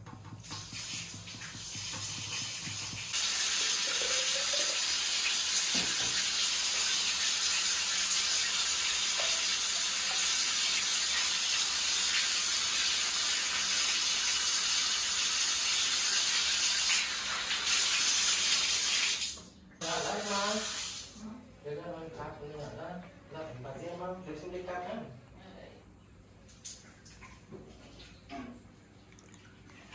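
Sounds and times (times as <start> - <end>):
tap water running and splashing: 0.0 - 21.2.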